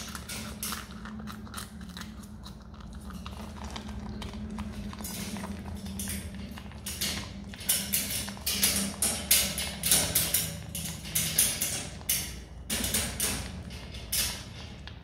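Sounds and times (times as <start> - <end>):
marmot chewing crisp vegetable: 0.0 - 7.6.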